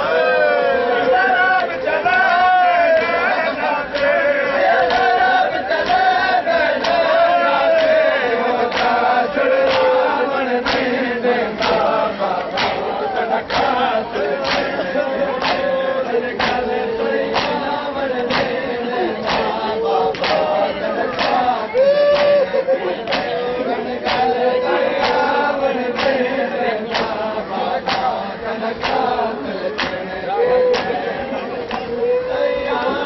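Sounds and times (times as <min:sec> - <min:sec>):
men chanting in unison: 0:00.0 - 0:33.0
hands slapping chests: 0:08.7 - 0:09.0, 0:09.6 - 0:10.0, 0:11.6 - 0:12.9, 0:14.4 - 0:14.8, 0:15.4 - 0:15.8, 0:16.4 - 0:16.7, 0:17.3 - 0:17.7, 0:18.3 - 0:18.6, 0:19.2 - 0:22.4, 0:23.1 - 0:23.4, 0:24.0 - 0:24.3, 0:26.0 - 0:26.2, 0:27.8 - 0:28.2, 0:28.8 - 0:29.1, 0:29.8 - 0:30.0, 0:30.7 - 0:31.0.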